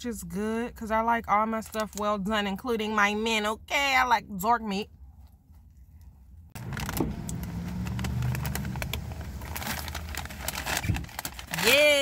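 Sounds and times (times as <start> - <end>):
paper bag rustling: 6.6 - 12.0.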